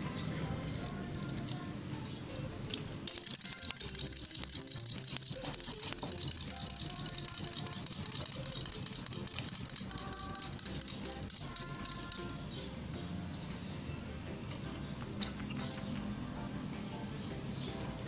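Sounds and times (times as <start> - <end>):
toy mechanism clicking rapidly: 0.0 - 12.4.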